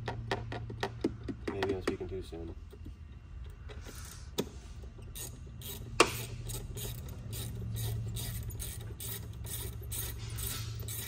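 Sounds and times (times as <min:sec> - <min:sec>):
ratchet wrench clicking: 0:05.0 - 0:11.0.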